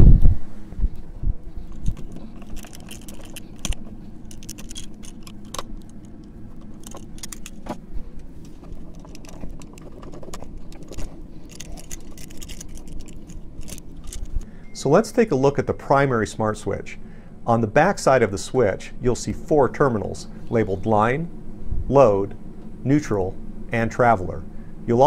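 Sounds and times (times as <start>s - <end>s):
metal wires clinking: 1.6s - 15.0s.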